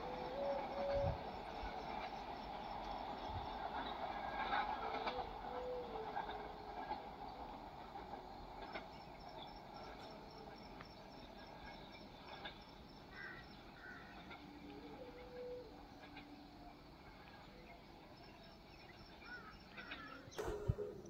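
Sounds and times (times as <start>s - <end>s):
distant train rumble: 0.0s - 21.0s
birds chirping: 10.9s - 21.0s.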